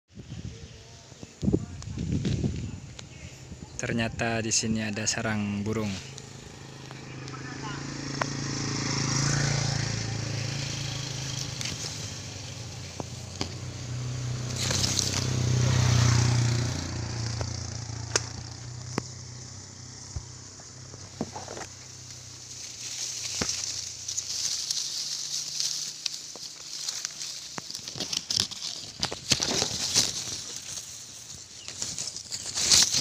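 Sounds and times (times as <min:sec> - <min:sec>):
leaves rustling: 0:00.1 - 0:03.6, 0:04.3 - 0:33.0
vehicle hum: 0:04.9 - 0:33.0
motorcycle engine passing: 0:05.0 - 0:33.0
sharp clicks and crackles: 0:10.6 - 0:13.9, 0:17.2 - 0:33.0.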